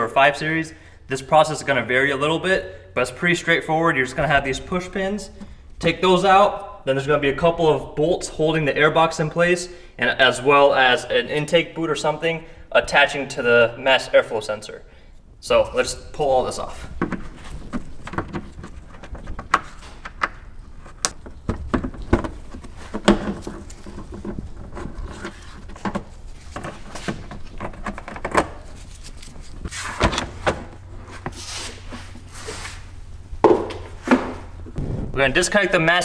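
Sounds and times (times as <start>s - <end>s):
plastic duct rubbing and scraping: 16.5s - 33.0s.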